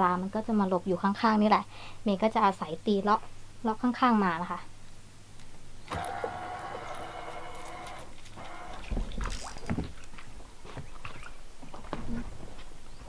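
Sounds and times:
fishing reel spool whirring: 5.9s - 8.9s.

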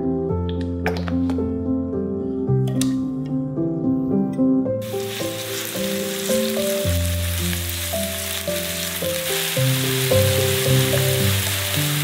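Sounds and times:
background music with melody: 0.0s - 12.0s
onion sizzling in hot oil: 4.8s - 12.0s.

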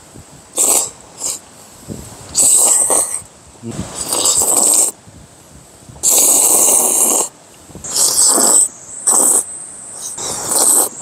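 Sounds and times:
man slurping noodles: 0.6s - 1.4s, 2.3s - 3.2s, 3.9s - 5.0s, 6.0s - 11.0s.

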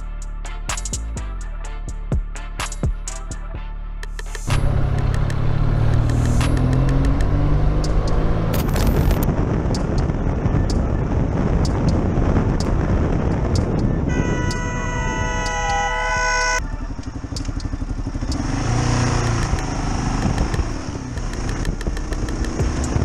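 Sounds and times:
road and wind noise: 4.2s - 23.0s
motorcycle engine revving: 4.4s - 23.0s
vehicle horn: 13.8s - 18.8s.

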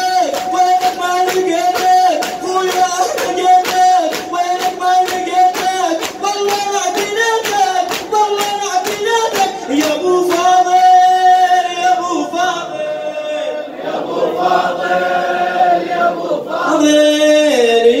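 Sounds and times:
rhythmic chest-beating slaps: 0.0s - 12.8s
crowd chanting in unison: 9.3s - 17.0s.

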